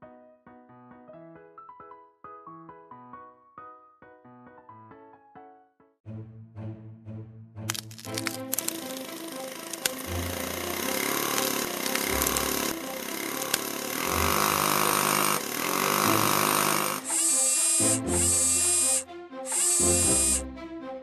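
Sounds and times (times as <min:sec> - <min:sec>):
background music: 0:00.0 - 0:21.0
cartoon drill boring asphalt: 0:07.7 - 0:20.4
loud harsh bursts: 0:09.9 - 0:20.4.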